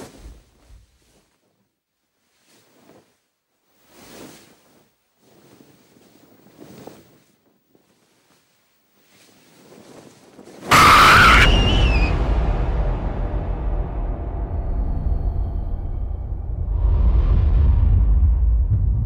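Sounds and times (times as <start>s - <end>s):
shrill wavering screech: 10.7s - 12.6s
horror jump-scare hit: 10.7s - 19.0s
low rumble: 10.8s - 19.0s.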